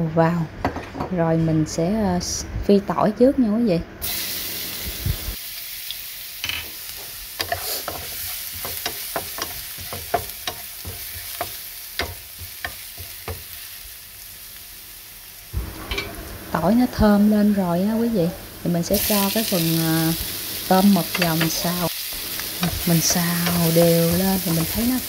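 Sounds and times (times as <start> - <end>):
garlic sizzling in oil: 4.0 - 25.0
spatula scraping and tapping pan: 7.4 - 13.5.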